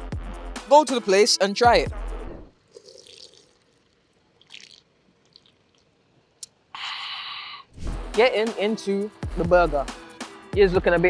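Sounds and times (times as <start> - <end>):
sips and swallows: 2.7 - 6.0.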